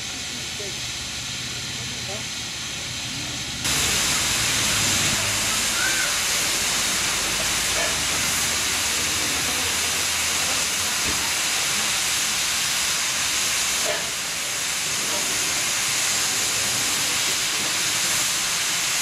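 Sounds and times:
steam hissing: 0.0 - 19.0.

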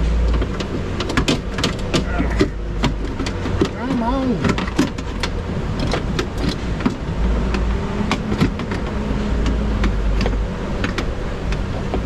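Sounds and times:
metallic clicks and knocks: 0.2 - 12.0.

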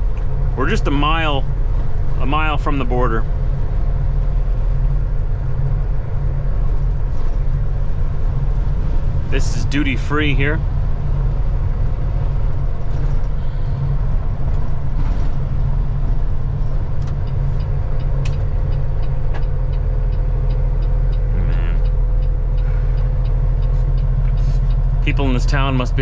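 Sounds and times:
truck diesel engine droning: 0.0 - 26.0
light ticking: 14.2 - 26.0.

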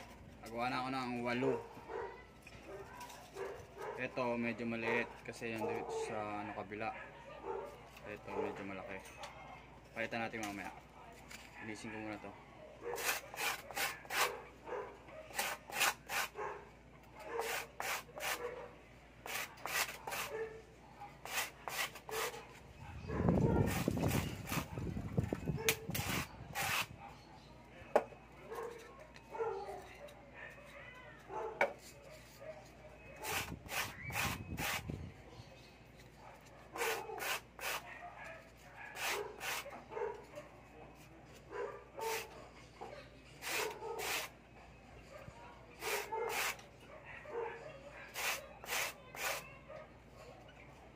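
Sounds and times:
styrofoam scraping on cement: 17.4 - 18.4, 19.2 - 20.3, 21.2 - 22.3, 25.9 - 27.0, 39.0 - 39.7, 43.4 - 44.3, 48.1 - 49.4
foam squeaky scraping: 33.0 - 35.0, 48.1 - 49.5.

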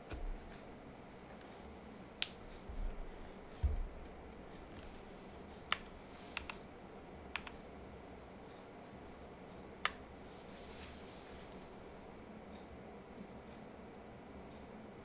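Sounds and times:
dull low thumps: 2.6 - 4.3.

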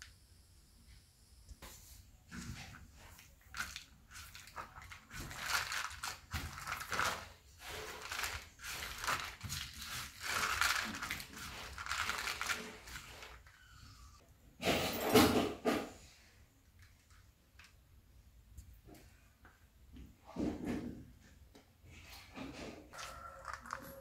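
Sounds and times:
hands mixing noodles on a leaf: 1.7 - 14.2, 22.9 - 24.0.

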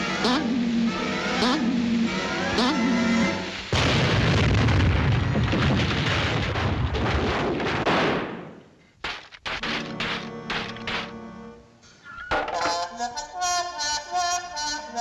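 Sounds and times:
music: 0.0 - 3.7, 9.6 - 15.0
cartoon explosion with deep rumble: 3.7 - 8.6.

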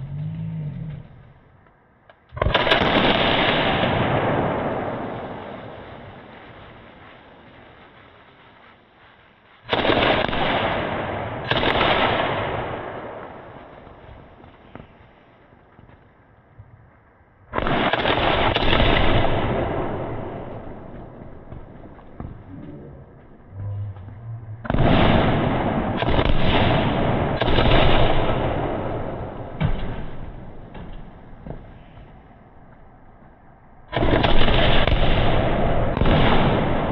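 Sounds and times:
firework bursts: 2.3 - 15.6, 17.6 - 22.5, 23.4 - 32.4.

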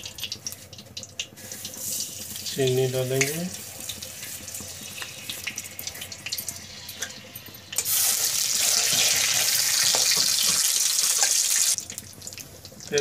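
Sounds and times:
spatula stirring: 0.0 - 7.9
oil crackling and popping: 0.0 - 13.0
loud sizzling hiss: 1.4 - 11.8.

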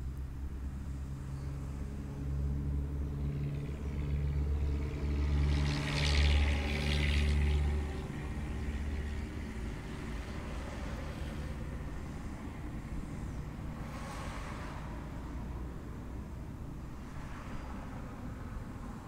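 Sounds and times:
vehicle passing close by: 2.3 - 12.0.

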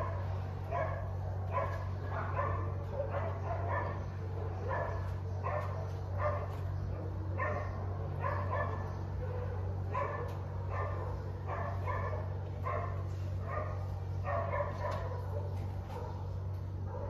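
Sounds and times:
dog barking: 0.0 - 6.7, 7.3 - 17.0
steady low hum: 0.0 - 17.0.

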